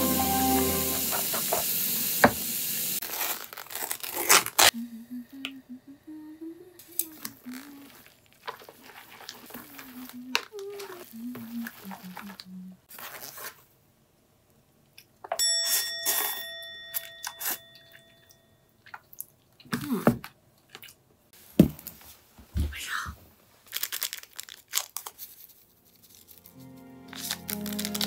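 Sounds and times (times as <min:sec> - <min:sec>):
bell-like chime: 0:00.0 - 0:01.2, 0:15.4 - 0:18.6
sachet tearing open: 0:03.0 - 0:04.8, 0:07.0 - 0:13.6, 0:23.6 - 0:28.0
plastic tray crinkling: 0:07.0 - 0:12.4.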